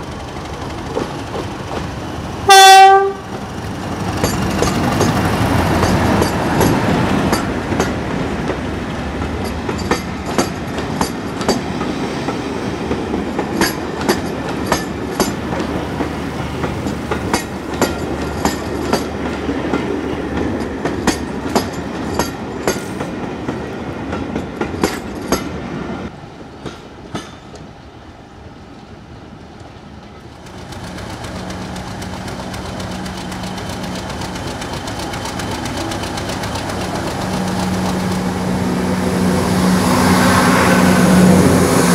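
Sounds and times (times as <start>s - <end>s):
train rumble: 0.0s - 41.9s
wheels clicking over rail joints: 2.9s - 11.9s, 12.8s - 25.6s, 29.6s - 38.4s
steady engine hum: 30.4s - 41.9s.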